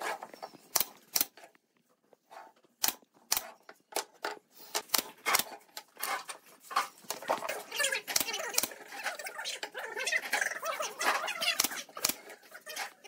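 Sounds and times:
wooden strips knocking and clattering: 3.4s - 7.7s
pneumatic nailer firing: 4.7s - 5.6s.

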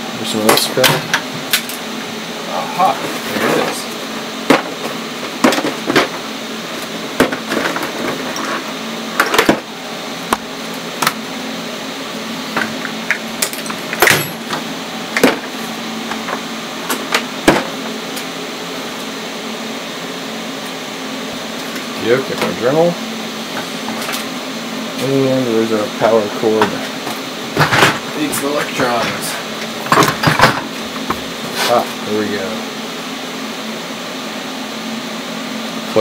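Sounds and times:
steady low hum: 0.0s - 36.0s
tools knocking and clattering: 29.8s - 31.2s.

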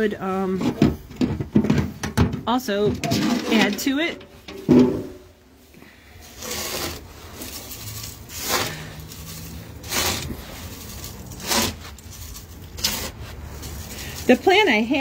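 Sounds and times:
scoop scraping and sifting sand: 5.8s - 15.0s.

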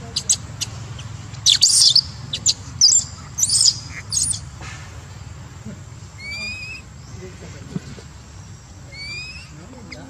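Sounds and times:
baby monkey crying squeals: 0.1s - 4.5s, 6.2s - 6.9s, 8.9s - 10.0s.

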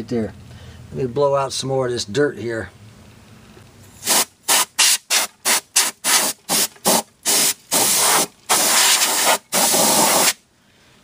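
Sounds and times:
compressed air can hissing: 4.0s - 10.4s.

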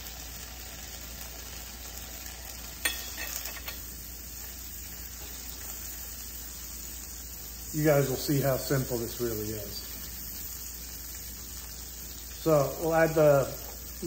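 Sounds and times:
peppers sizzling in a frying pan: 0.0s - 14.0s
spatula tapping a pan: 2.8s - 3.8s.

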